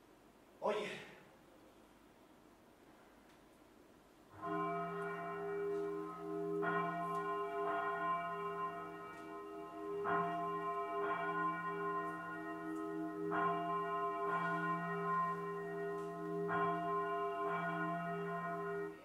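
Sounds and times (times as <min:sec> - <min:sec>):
bell tolling: 0:04.4 - 0:19.0.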